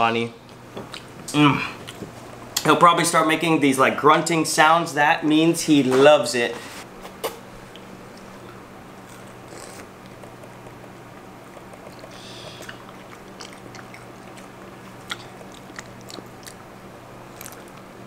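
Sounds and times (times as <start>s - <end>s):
steady low hum: 0.0s - 18.0s
chimpanzee chewing: 7.0s - 17.9s.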